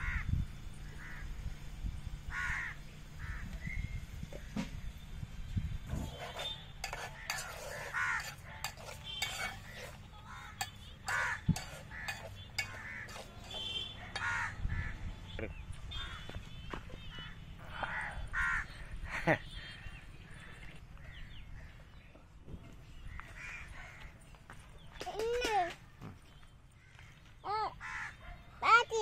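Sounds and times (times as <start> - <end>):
animal giving harsh crow-like calls: 6.8 - 15.0, 17.9 - 18.7.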